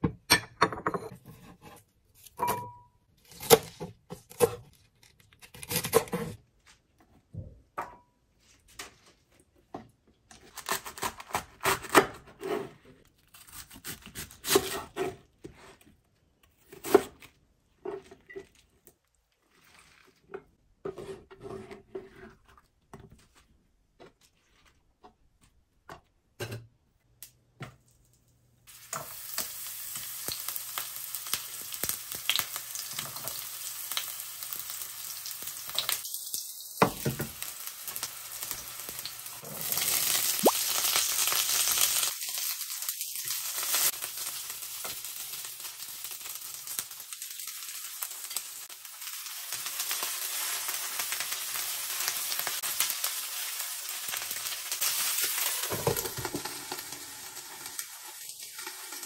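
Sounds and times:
knife slicing cabbage: 0:03.2 - 0:06.4, 0:10.4 - 0:15.9, 0:16.5 - 0:17.3
garlic sizzling in oil: 0:28.7 - 0:59.0.

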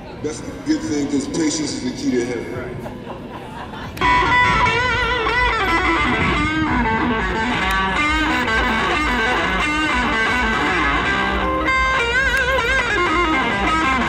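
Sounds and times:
electric guitar lead: 0:04.0 - 0:14.0.

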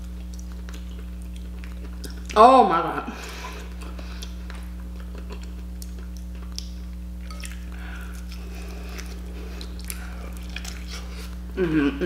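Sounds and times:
wet chewing and tearing: 0:00.0 - 0:02.4, 0:03.6 - 0:11.5
steady low hum: 0:00.0 - 0:12.0.

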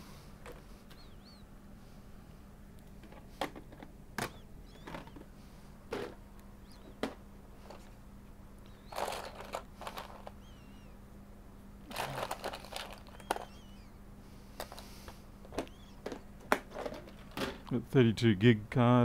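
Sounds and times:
hands rummaging through small items: 0:08.9 - 0:10.4, 0:11.9 - 0:13.5.

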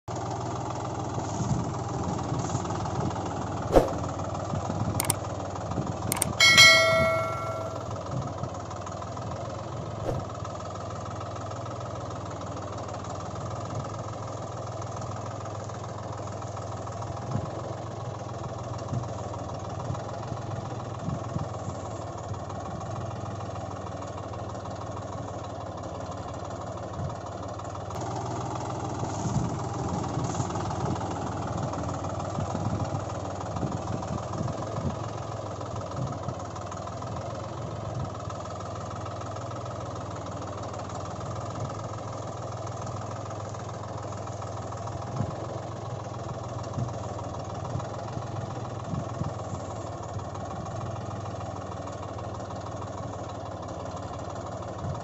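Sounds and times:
low engine hum: 0:00.1 - 0:55.0
sharp clicks: 0:06.1 - 0:07.8
bell-like ding: 0:06.1 - 0:07.9.

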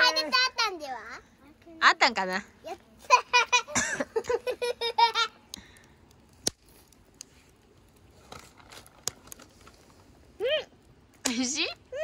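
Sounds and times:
child giggling: 0:03.0 - 0:05.4.

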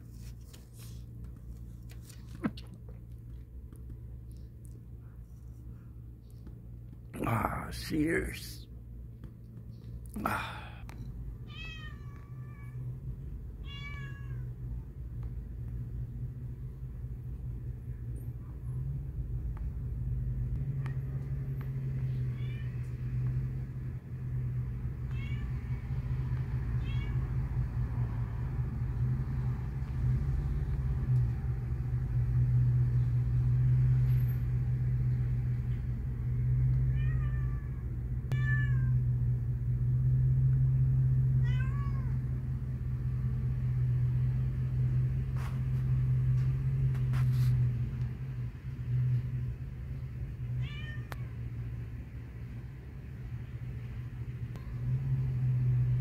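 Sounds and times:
steady low hum: 0:00.0 - 0:13.8
cat meowing: 0:11.4 - 0:12.9, 0:13.6 - 0:14.5, 0:22.1 - 0:22.9, 0:25.0 - 0:25.6, 0:26.8 - 0:27.3, 0:36.9 - 0:39.0, 0:41.4 - 0:42.2, 0:50.6 - 0:51.3.

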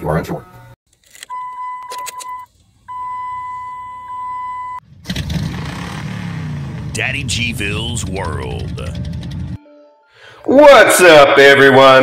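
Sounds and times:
electronic beep tone: 0:01.3 - 0:04.8
loud car engine: 0:04.8 - 0:09.6.

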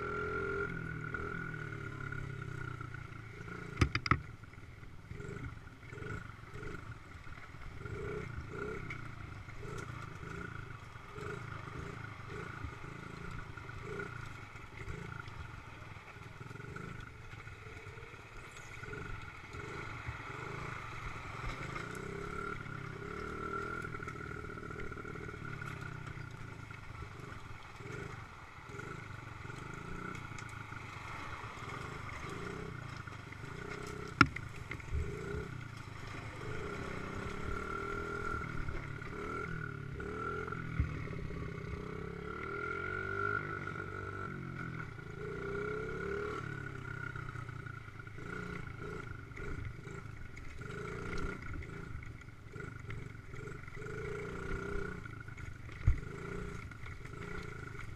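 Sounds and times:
dirt bike engine: 0:00.0 - 0:57.9
utility vehicle engine running: 0:00.0 - 0:57.9.

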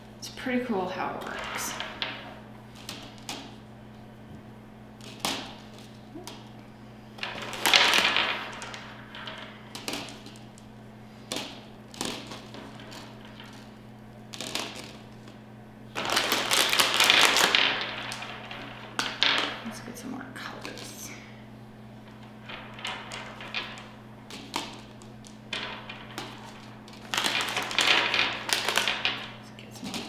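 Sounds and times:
plastic bag crinkling: 0:07.2 - 0:15.4, 0:16.0 - 0:19.8, 0:22.2 - 0:30.0
jelly beans tapping on paper plate: 0:22.4 - 0:30.0.

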